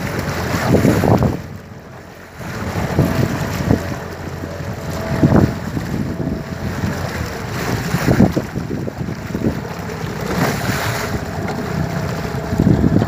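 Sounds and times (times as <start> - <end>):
faint motor hum: 0.0 - 13.0
water splashing against hull: 0.0 - 13.0
wind buffeting microphone: 0.0 - 13.0.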